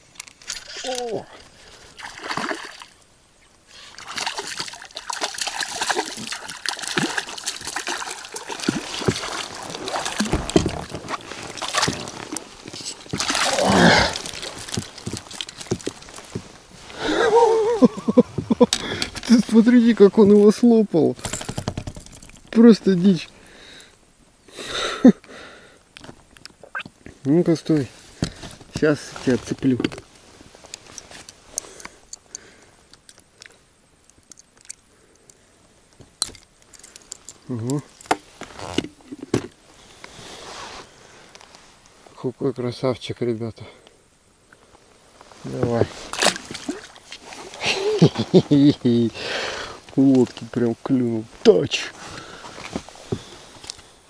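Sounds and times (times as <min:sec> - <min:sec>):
water splashing beside boat: 0:01.7 - 0:03.1, 0:03.7 - 0:17.0
fish and lure clicks and taps: 0:34.1 - 0:35.4.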